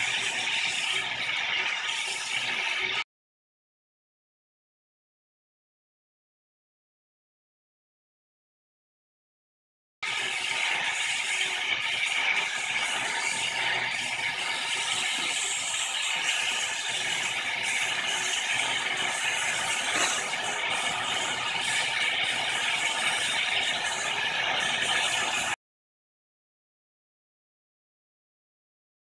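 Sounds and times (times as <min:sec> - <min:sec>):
torch flame hissing: 0:00.0 - 0:03.0, 0:10.0 - 0:25.6.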